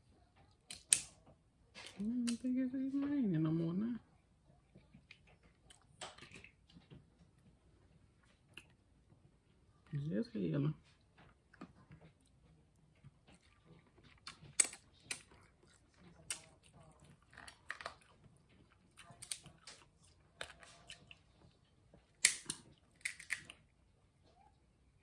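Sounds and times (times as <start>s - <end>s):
chewing and mouth sounds: 11.0s - 23.6s
crab shells cracking: 14.1s - 15.4s, 16.1s - 21.1s, 22.2s - 23.6s.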